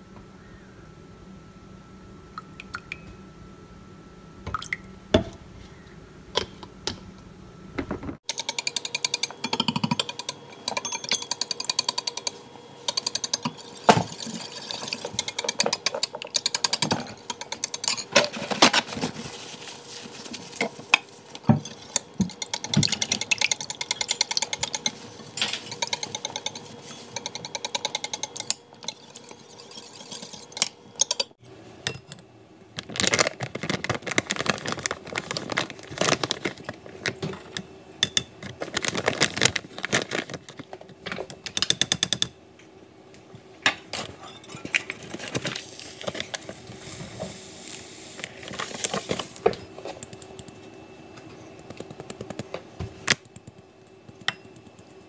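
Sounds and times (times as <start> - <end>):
ladle scraping wire strainer: 21.6 - 31.3.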